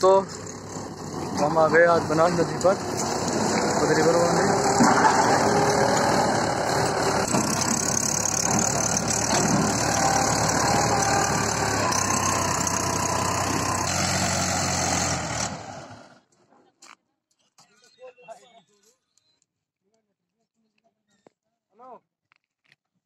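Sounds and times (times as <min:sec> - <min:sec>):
tractor diesel engine running: 0:00.0 - 0:16.2.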